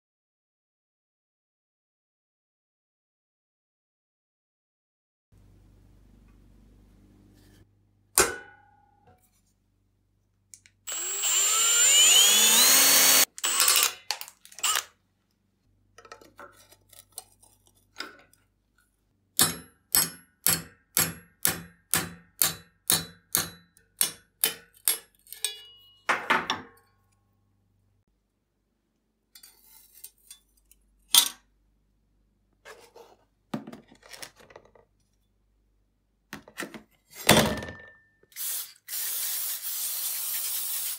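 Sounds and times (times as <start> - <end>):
power tool whining: 10.9 - 14.0, 14.6 - 14.9.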